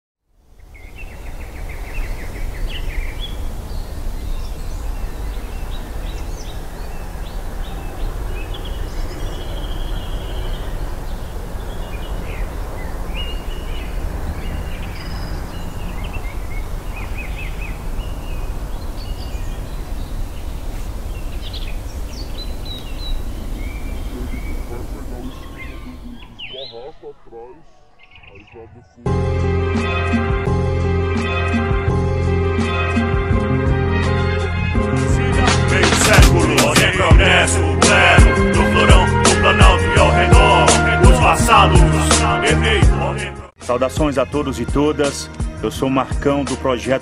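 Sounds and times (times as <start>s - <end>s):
birds chirping and trilling: 0.5s - 47.0s
steady low rumble: 1.0s - 27.6s.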